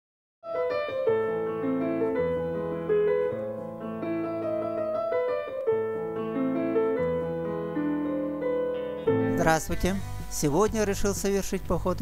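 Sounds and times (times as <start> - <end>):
piano melody: 0.4 - 12.0
held bass notes: 9.1 - 12.0.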